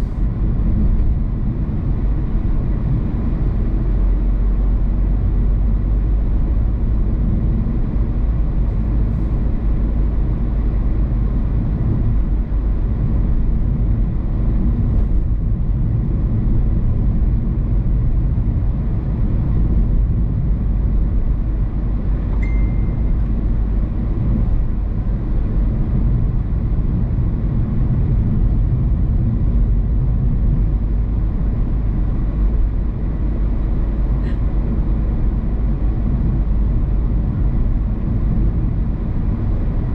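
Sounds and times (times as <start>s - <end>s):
car driving on road: 0.0s - 39.9s
brief high tone: 22.4s - 23.1s.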